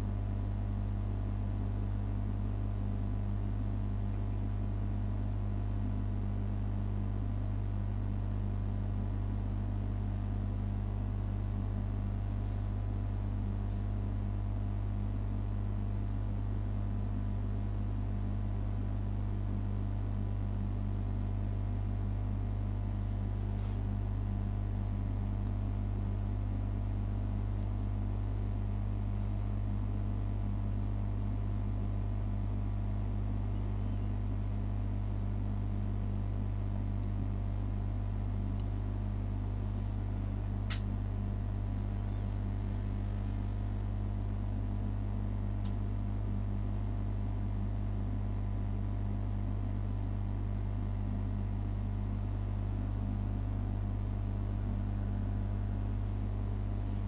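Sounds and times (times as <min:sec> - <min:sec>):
low electrical hum: 0:00.0 - 0:57.0
sharp click: 0:40.6 - 0:41.0.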